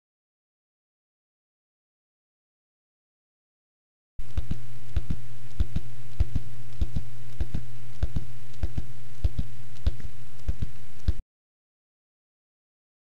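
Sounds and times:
low hum: 4.2s - 11.2s
heartbeat double thump: 4.3s - 11.2s.

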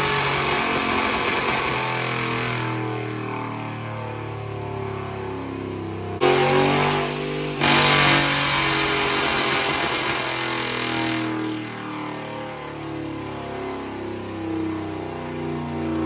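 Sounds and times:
vee eight engine revving: 6.2s - 11.4s.

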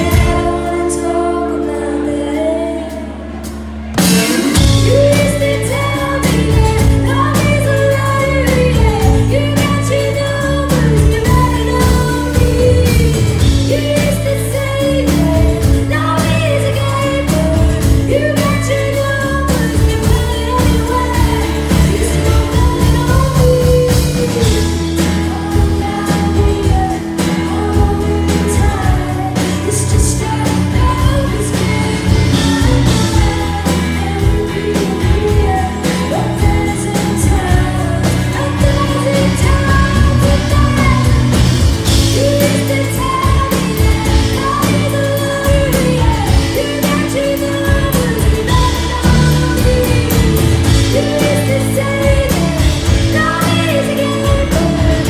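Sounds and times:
drums: 0.0s - 55.0s
woman singing: 0.0s - 55.0s.

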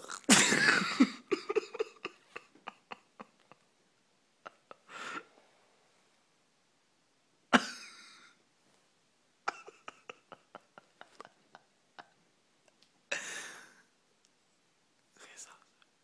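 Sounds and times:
stifled laughter: 0.3s - 3.7s, 4.4s - 5.3s, 9.5s - 12.2s.

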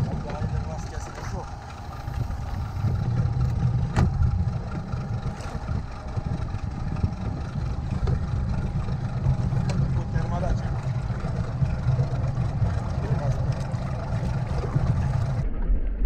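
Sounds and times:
boat engine idling: 0.0s - 15.4s.

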